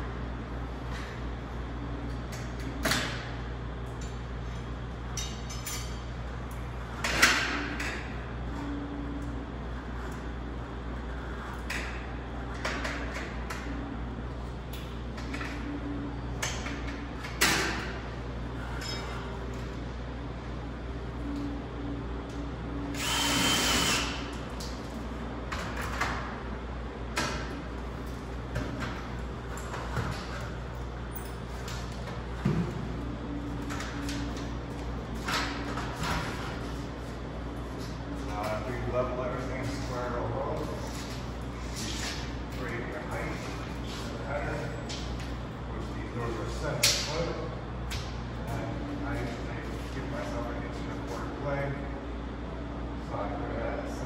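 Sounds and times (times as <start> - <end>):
metallic clanks with ring: 18.8 - 19.3
power drill whining: 22.9 - 24.2.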